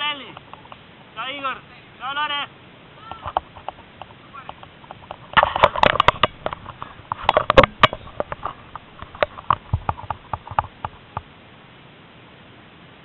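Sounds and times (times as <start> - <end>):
camera handling against rope netting: 3.1 - 11.2.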